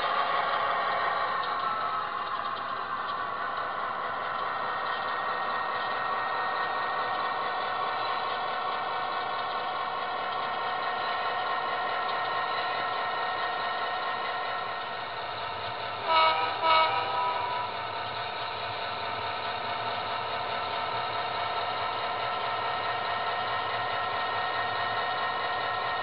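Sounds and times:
model train engine drone: 0.0s - 26.0s
model train horn toots: 16.0s - 17.8s.

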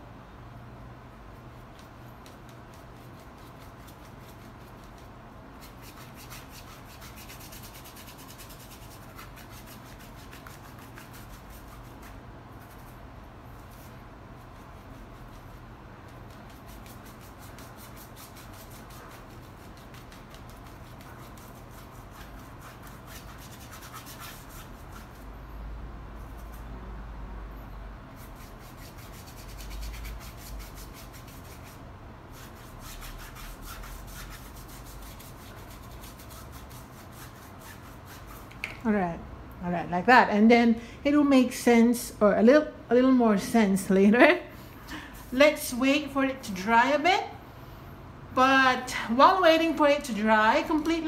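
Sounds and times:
paintbrush strokes on canvas: 1.3s - 25.3s.

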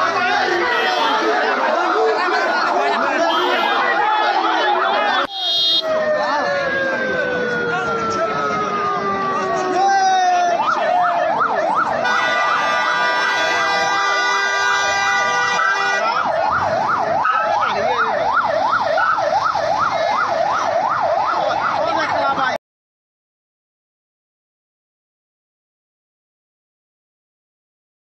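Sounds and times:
siren fast yelp: 0.0s - 22.4s.

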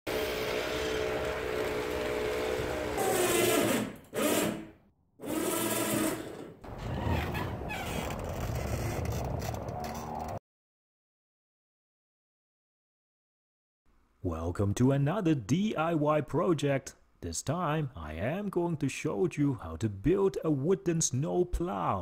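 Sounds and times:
small electric motor whirring: 0.1s - 6.5s.

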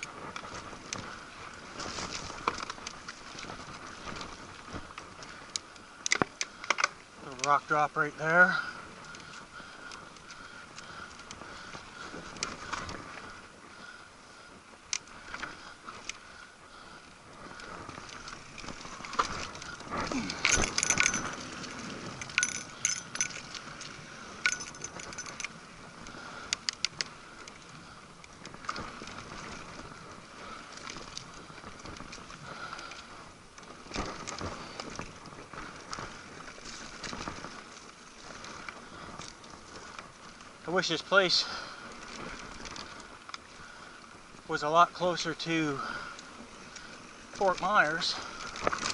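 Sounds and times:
bike tyres rolling on dirt: 0.0s - 48.9s
metallic rattling and clicking: 20.4s - 21.4s, 22.2s - 23.4s, 24.4s - 25.5s.

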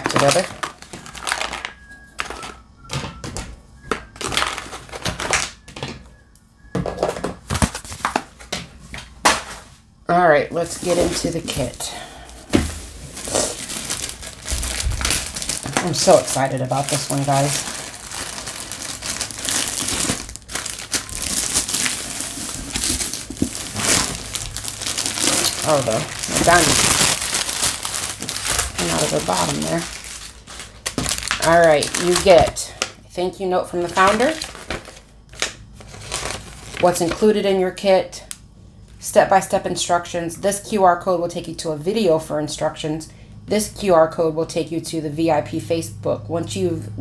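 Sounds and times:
plastic pouch crinkling: 0.0s - 2.6s, 4.0s - 5.6s, 12.7s - 32.8s, 33.8s - 37.2s.

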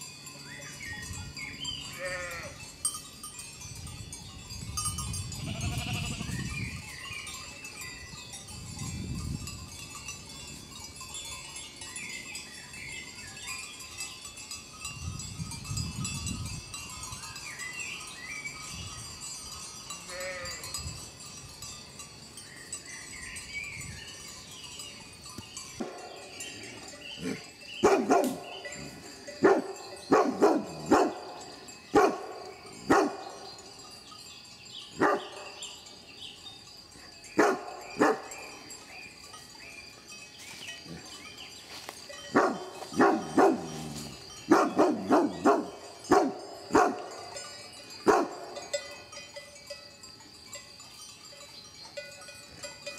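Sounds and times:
faint birdsong: 0.0s - 2.7s, 5.5s - 8.6s, 11.1s - 14.6s, 16.9s - 20.8s, 21.6s - 48.4s
large dog barking: 27.2s - 28.5s, 29.4s - 31.3s, 31.9s - 33.3s, 35.0s - 35.5s, 37.4s - 38.3s, 42.3s - 43.9s, 44.5s - 47.1s, 48.0s - 48.4s.

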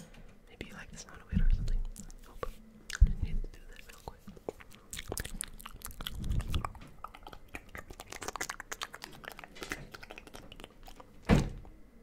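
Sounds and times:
wet mouth clicks and smacks: 2.9s - 11.3s
thump against microphone: 11.3s - 11.6s.

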